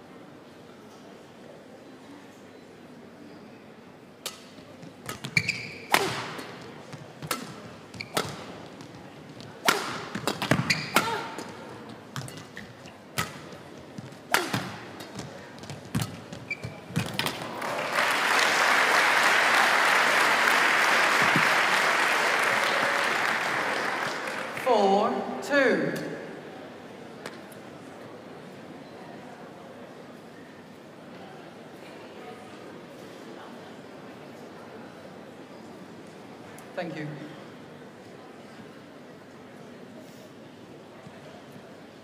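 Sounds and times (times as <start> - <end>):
rackets hitting shuttlecock: 4.2 - 17.6
audience applause: 17.4 - 24.6.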